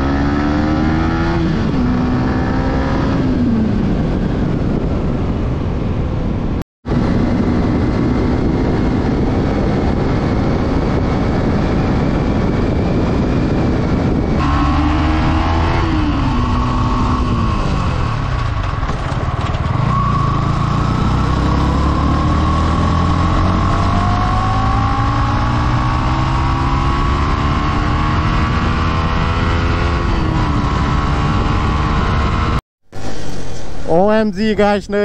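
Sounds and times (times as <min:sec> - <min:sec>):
wind rushing: 0:00.0 - 0:18.7
motorcycle engine: 0:00.0 - 0:34.1.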